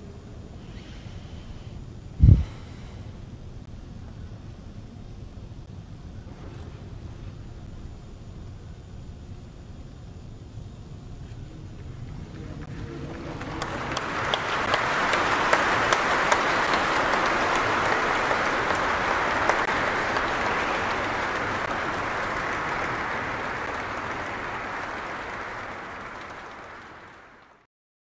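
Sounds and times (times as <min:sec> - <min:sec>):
audience applauding: 0:11.8 - 0:27.7.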